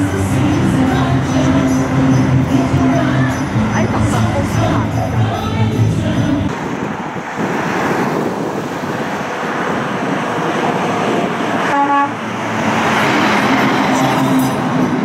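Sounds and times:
traffic tyre and engine noise: 0.0 - 15.0
vehicle horn toot: 11.7 - 12.2.

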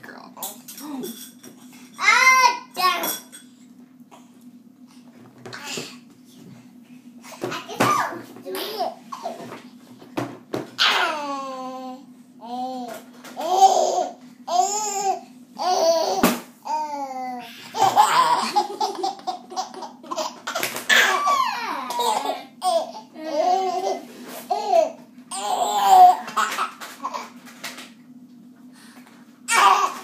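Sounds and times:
baby laughing: 17.7 - 27.4, 29.5 - 30.0.

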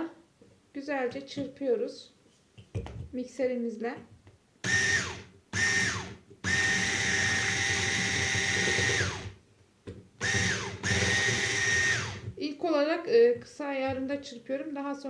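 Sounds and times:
electric hand mixer whining: 4.6 - 9.4, 10.2 - 12.4.

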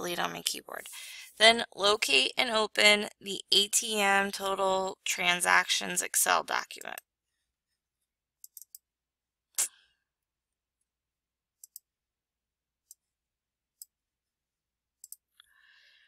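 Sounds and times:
computer mouse clicking: 8.4 - 8.8, 11.6 - 11.8, 15.0 - 15.2.

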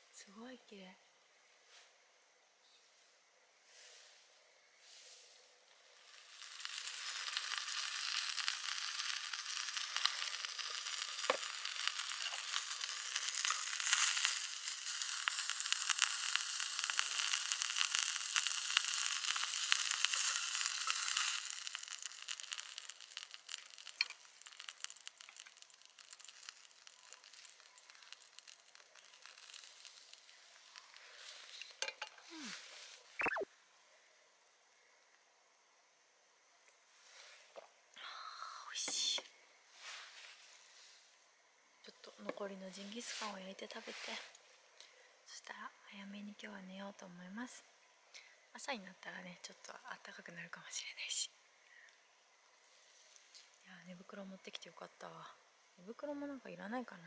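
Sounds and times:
meat sizzling in a pan: 5.8 - 32.6.

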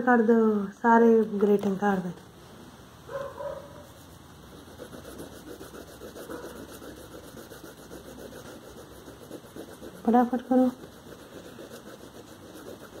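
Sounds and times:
scratchy colouring strokes on paper: 3.8 - 13.0.

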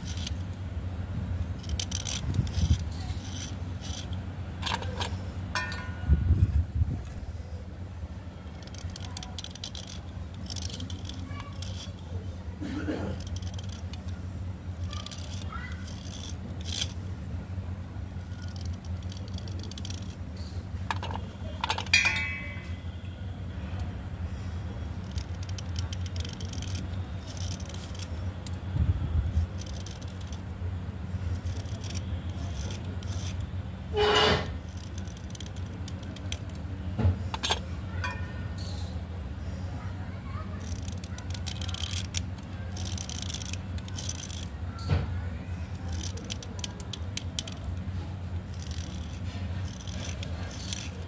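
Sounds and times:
steady low hum: 0.0 - 51.0
metal blade scraping slate: 1.6 - 6.0, 20.4 - 22.8, 34.0 - 35.0, 37.3 - 39.0
shavings clinking on steel plate: 21.7 - 22.8.

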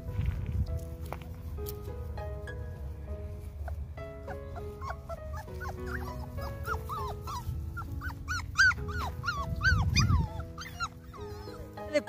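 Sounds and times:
puppies whining and yelping: 3.6 - 12.0.

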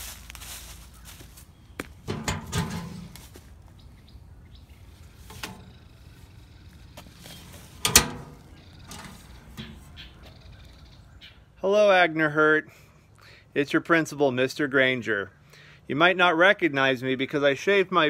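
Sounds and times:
birds chirping faintly: 0.2 - 12.2
metal mailbox rattling: 2.0 - 3.3, 5.3 - 6.0, 7.2 - 10.3
mailbox door clapping shut: 2.1 - 3.2, 7.8 - 9.9.

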